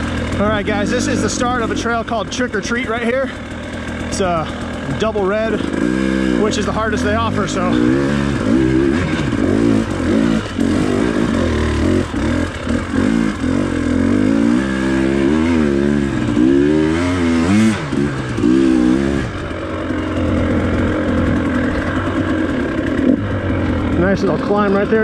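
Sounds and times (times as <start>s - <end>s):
dirt bike engine revving: 0.0s - 25.0s.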